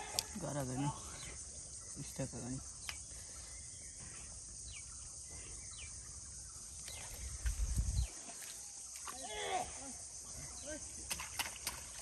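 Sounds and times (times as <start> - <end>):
high insect drone: 0.0 - 12.0
bird chirps: 1.1 - 8.4.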